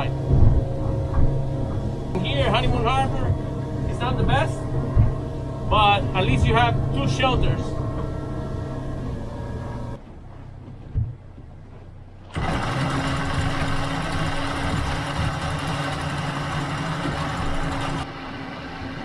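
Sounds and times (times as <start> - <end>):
boat motor clattering: 0.0 - 19.0
single thump: 10.7 - 11.2.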